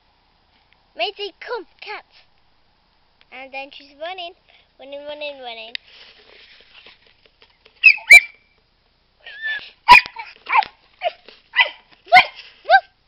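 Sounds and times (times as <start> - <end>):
dog barking: 7.8 - 8.3, 9.9 - 12.9.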